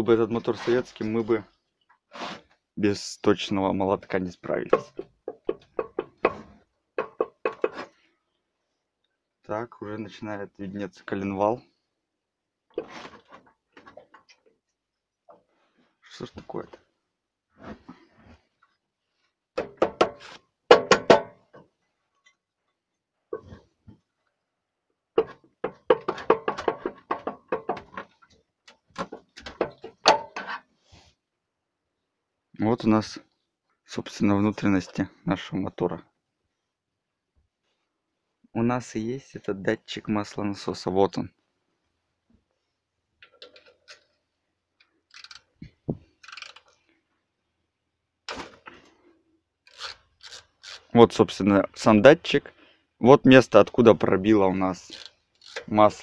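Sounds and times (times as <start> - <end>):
metal cover knocking and clattering: 4.7 - 7.8, 19.6 - 21.4, 25.2 - 28.2, 29.0 - 30.5
ratchet clicks: 45.1 - 45.5, 46.2 - 46.7, 49.6 - 50.9, 54.8 - 55.7.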